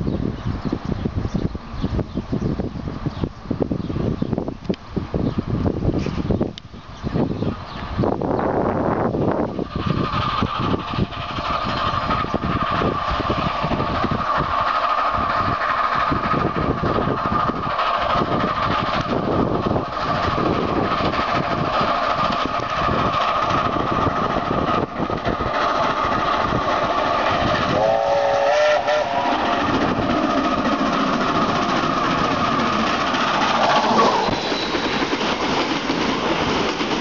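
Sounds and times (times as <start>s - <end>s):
steam locomotive exhaust beating: 0.0s - 37.0s
steam whistle blast: 27.7s - 29.3s.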